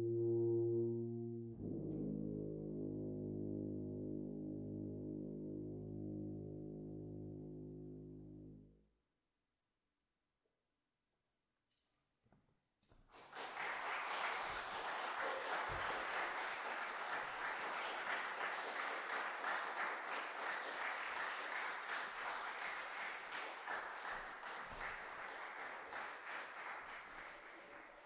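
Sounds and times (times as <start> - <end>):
audience applauding: 13.1 - 28.0.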